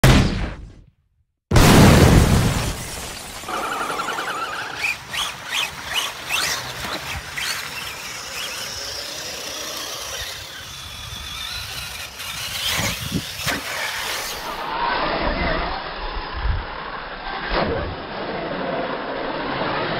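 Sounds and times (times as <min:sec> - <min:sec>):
toy truck electric motor whining: 0:03.5 - 0:17.5.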